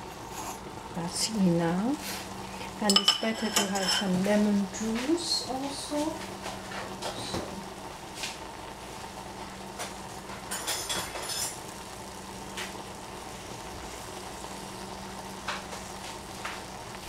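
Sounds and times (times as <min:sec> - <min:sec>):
fruit sauce bubbling and popping: 0:06.1 - 0:17.0.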